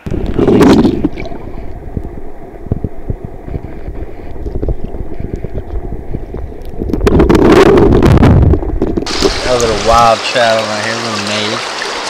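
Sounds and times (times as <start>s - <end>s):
muffled underwater stream rushing: 0.0s - 12.0s
small underwater clicks: 0.2s - 9.4s.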